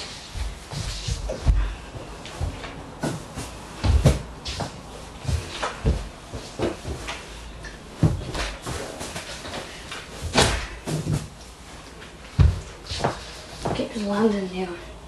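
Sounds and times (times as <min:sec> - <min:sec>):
heavy thud on floor: 0:02.4 - 0:07.0, 0:12.4 - 0:13.8.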